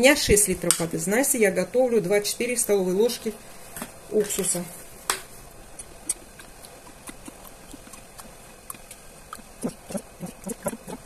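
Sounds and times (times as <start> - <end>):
small ticks: 5.8 - 11.0.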